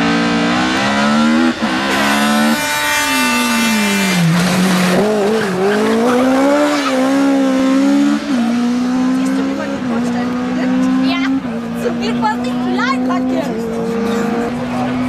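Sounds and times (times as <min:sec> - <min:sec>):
rally car engine revving: 0:00.0 - 0:15.0
tyre squeal: 0:02.2 - 0:07.2.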